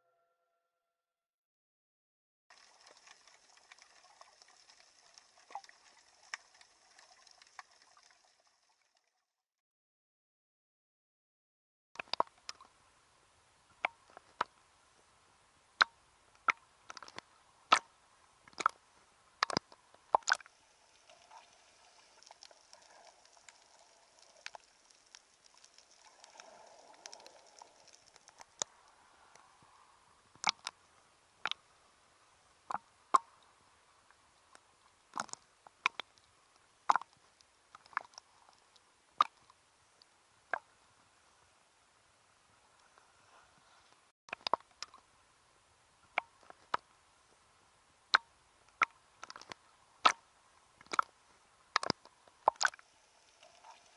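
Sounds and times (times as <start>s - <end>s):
faint steady hiss: 2.5s - 8.8s, 12.0s - 53.9s
sharp clicks and snaps: 12.0s - 12.7s, 18.5s - 18.8s, 19.4s - 20.5s, 22.0s - 29.5s, 30.4s - 30.8s, 34.5s - 36.3s, 36.9s - 39.6s, 44.3s - 45.0s, 48.1s - 50.2s, 50.8s - 51.1s, 51.8s - 52.8s.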